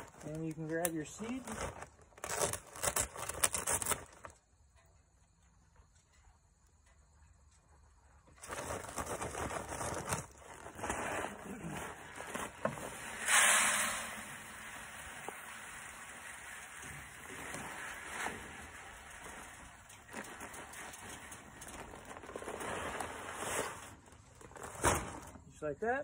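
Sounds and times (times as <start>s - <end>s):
plastic sack rustling: 0.0s - 4.3s, 8.4s - 25.4s
seed pouring into plastic jug: 8.8s - 24.0s.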